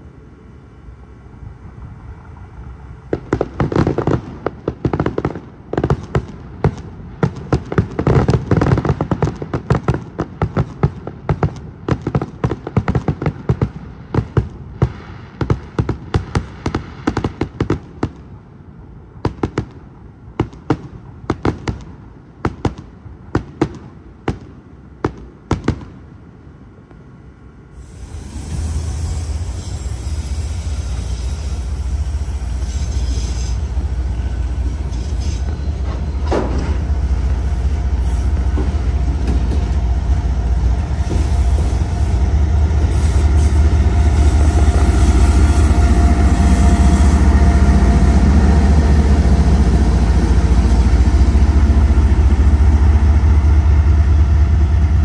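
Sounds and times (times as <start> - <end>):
train rumbling: 0.0 - 55.0
fireworks cracking and popping: 3.2 - 18.3.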